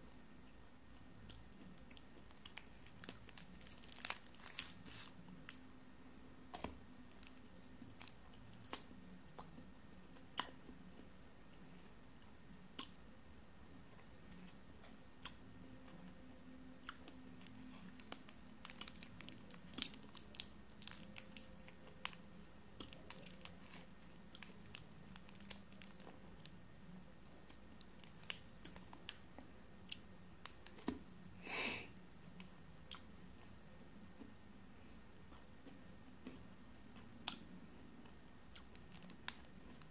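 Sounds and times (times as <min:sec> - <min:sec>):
foil wrapper crinkling: 0:02.3 - 0:05.2, 0:17.8 - 0:22.2, 0:22.8 - 0:26.1.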